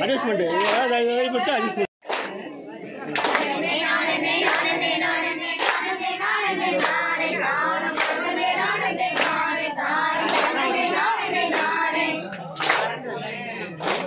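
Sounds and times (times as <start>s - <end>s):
hands clapping in time: 0.6s - 0.9s, 2.0s - 2.4s, 3.1s - 3.6s, 4.4s - 4.8s, 5.5s - 6.0s, 6.7s - 7.1s, 7.8s - 8.4s, 9.0s - 10.8s, 11.4s - 14.0s
women singing folk song: 3.3s - 12.2s.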